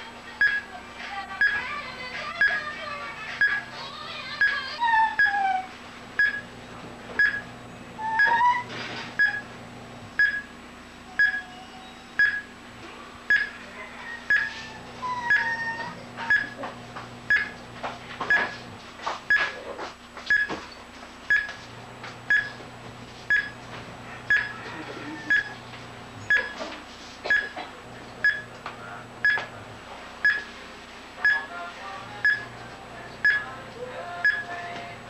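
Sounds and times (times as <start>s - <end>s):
watch tester beeping: 0.4s - 0.6s, 1.4s - 1.6s, 2.4s - 2.6s, 3.4s - 3.7s, 4.4s - 5.5s, 6.2s - 6.5s, 7.2s - 8.6s, 9.2s - 9.5s, 10.2s - 10.5s, 11.2s - 11.5s, 12.2s - 12.5s, 13.3s - 13.5s, 14.3s - 14.5s, 15.1s - 16.6s, 17.3s - 17.5s, 18.3s - 18.5s, 20.3s - 20.5s, 21.3s - 21.6s, 22.3s - 22.6s, 23.3s - 23.6s, 24.3s - 25.6s, 26.3s - 26.6s, 28.2s - 28.5s, 29.2s - 29.5s, 30.2s - 30.5s, 32.2s - 32.5s, 33.2s - 33.5s, 34.2s - 34.5s.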